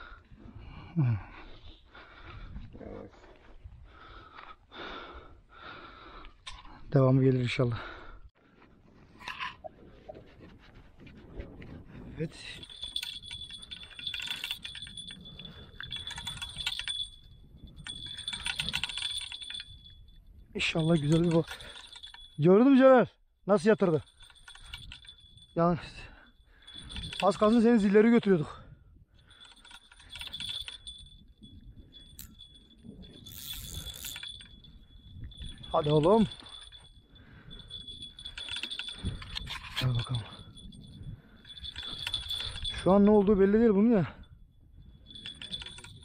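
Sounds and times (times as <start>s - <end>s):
fishing tackle clicking and jingling: 6.2s - 6.9s, 12.1s - 46.0s
fishing reel cranking ticks: 32.0s - 32.4s, 33.1s - 35.7s.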